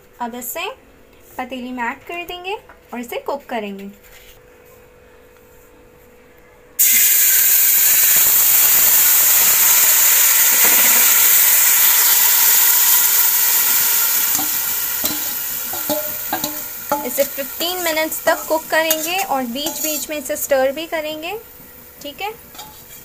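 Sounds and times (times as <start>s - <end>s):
chicken sizzling in hot pot: 6.8s - 23.0s.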